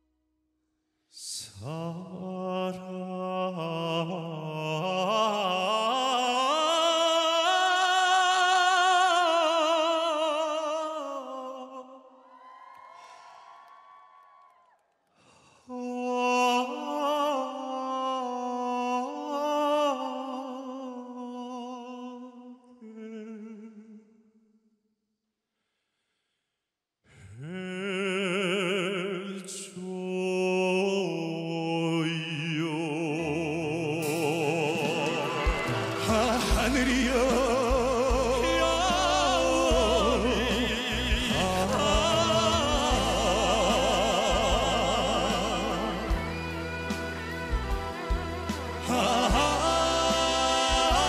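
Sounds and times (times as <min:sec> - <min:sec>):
two men singing a ballad duet: 0:01.2 - 0:12.0, 0:15.7 - 0:23.8, 0:27.4 - 0:47.0, 0:48.0 - 0:51.0
band accompaniment: 0:34.0 - 0:51.0.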